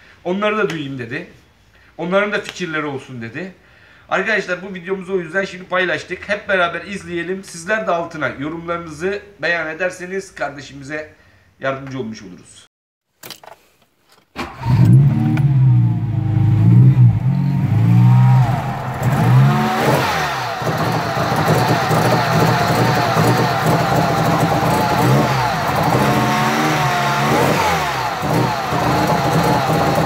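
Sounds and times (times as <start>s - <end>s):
car engine starting and revving: 14.4s - 30.0s.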